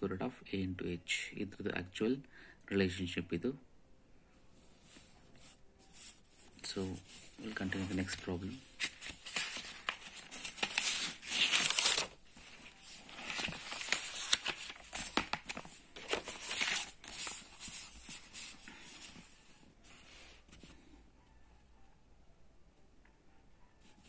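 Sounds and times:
paper rustling and crinkling: 0:04.8 - 0:20.8.

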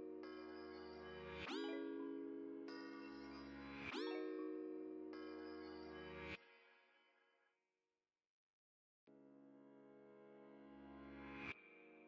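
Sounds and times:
soft instrumental music: 0:00.0 - 0:06.6.

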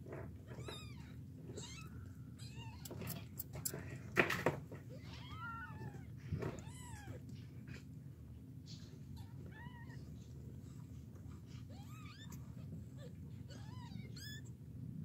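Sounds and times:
kittens mewing: 0:11.5 - 0:14.6.

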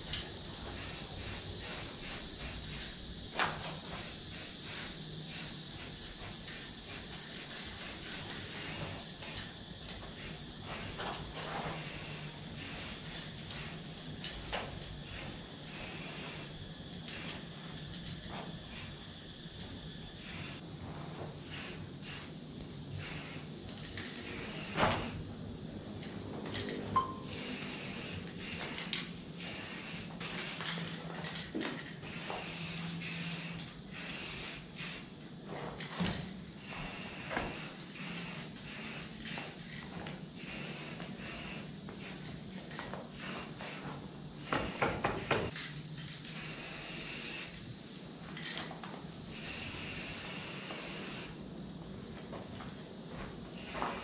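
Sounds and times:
spray can rattling: 0:00.0 - 0:19.0, 0:21.4 - 0:25.2, 0:27.6 - 0:35.1
spray can hissing: 0:00.0 - 0:35.4, 0:36.3 - 0:54.0.

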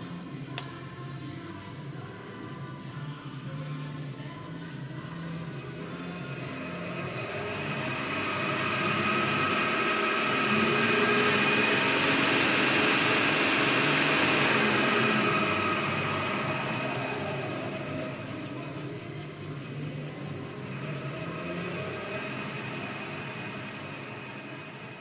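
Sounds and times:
milling machine spindle running: 0:05.2 - 0:25.0.

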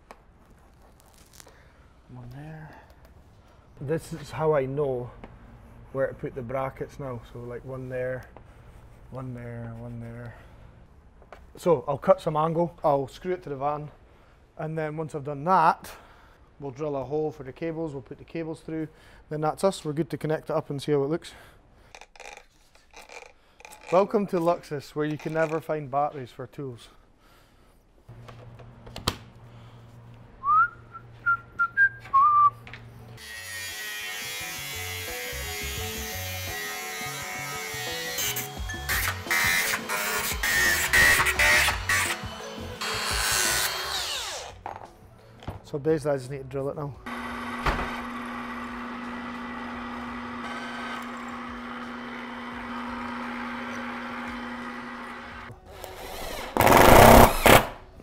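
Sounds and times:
background music: 0:30.3 - 0:47.1
person whistling: 0:30.4 - 0:32.6
angle grinder cutting metal: 0:33.2 - 0:44.6, 0:47.1 - 0:57.7
drill press cutting metal: 0:47.1 - 0:55.5.

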